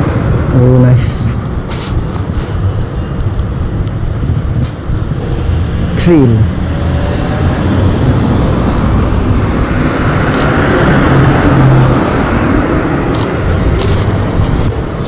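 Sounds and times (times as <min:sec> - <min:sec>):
road traffic: 0:00.0 - 0:15.0
car passing close by: 0:05.2 - 0:14.7.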